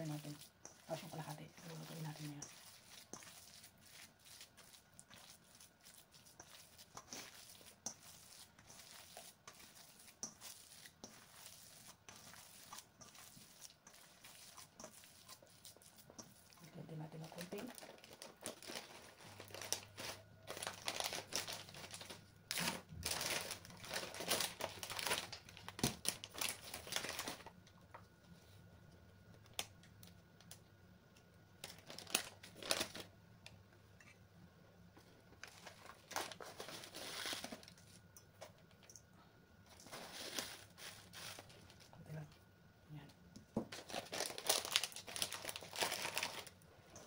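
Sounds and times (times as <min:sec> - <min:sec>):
hands kneading raw meat: 0:00.0 - 0:20.0.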